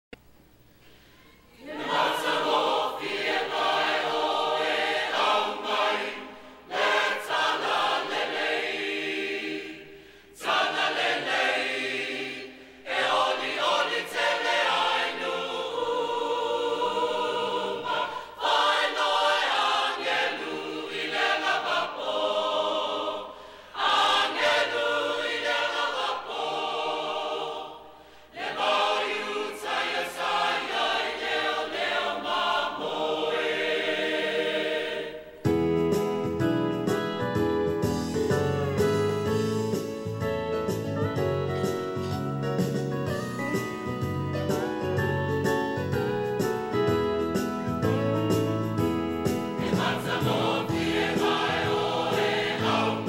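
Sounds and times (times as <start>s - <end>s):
mixed choir singing: 1.5s - 35.4s, 49.2s - 53.0s.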